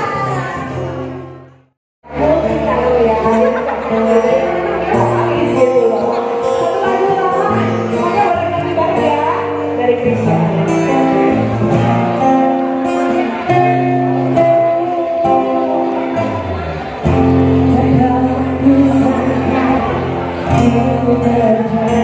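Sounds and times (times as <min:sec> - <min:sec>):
acoustic guitar: 0:00.0 - 0:22.0
woman singing into microphone: 0:02.1 - 0:11.3, 0:13.5 - 0:15.9, 0:17.4 - 0:22.0.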